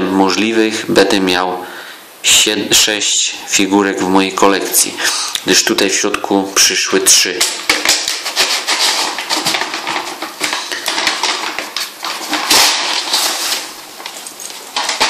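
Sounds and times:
tape and paper ripping off box: 7.4 - 15.0.

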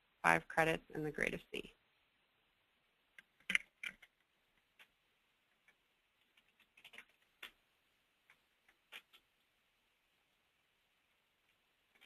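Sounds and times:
keyboard keystrokes: 6.3 - 7.6.

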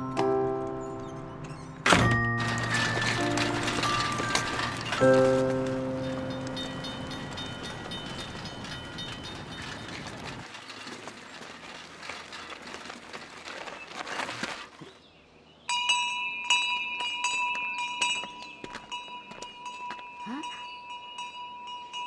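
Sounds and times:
wheels rattling over cobblestones: 0.0 - 15.0.

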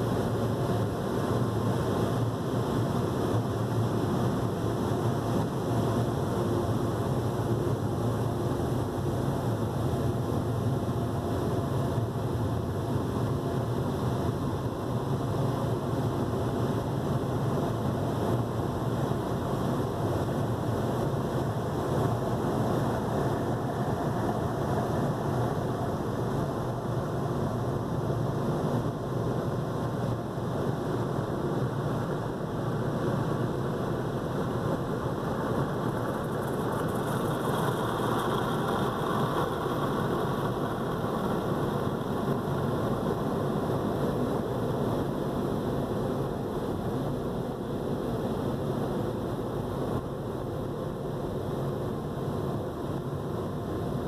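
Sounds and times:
low mechanical rumble: 15.6 - 51.6
car wash rushing noise: 34.3 - 44.3.

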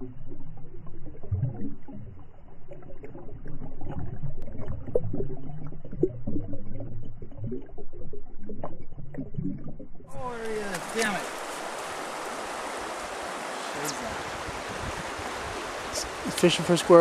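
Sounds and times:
underwater creek water rushing: 0.0 - 17.0
bubbly pops: 0.7 - 9.9.

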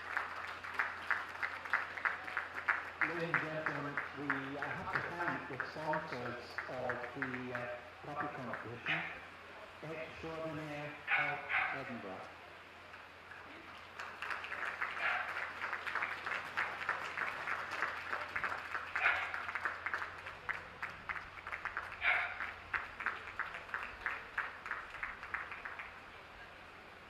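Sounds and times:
audience applauding: 0.0 - 8.9, 13.9 - 26.2.

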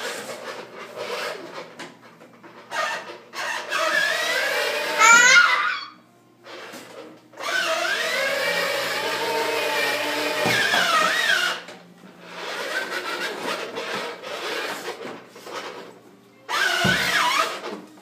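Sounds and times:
electric motor whirring: 7.4 - 11.7.

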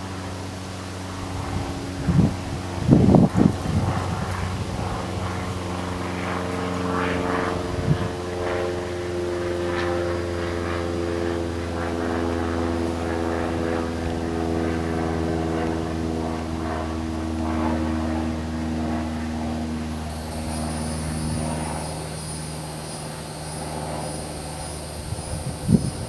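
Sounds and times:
distant engine drone: 0.0 - 26.0
high steady hiss: 20.0 - 26.0
held pitched tones: 20.1 - 26.0.

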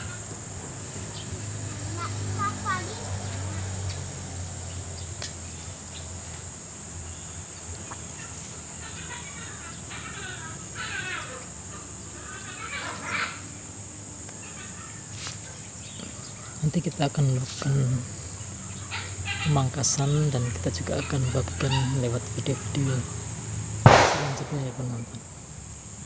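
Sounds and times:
birds chirping: 0.0 - 25.6
high-pitched insect drone: 0.0 - 26.0.

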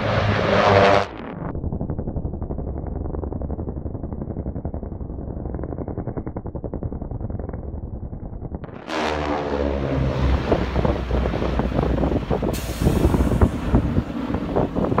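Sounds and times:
propeller planes droning overhead: 0.0 - 1.4, 8.8 - 15.0
rough gusty noise: 8.8 - 15.0.

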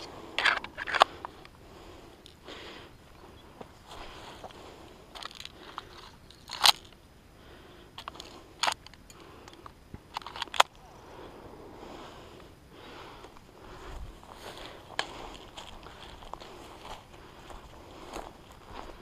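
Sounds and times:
footsteps crunching dry grass: 2.6 - 6.9, 12.8 - 19.0.

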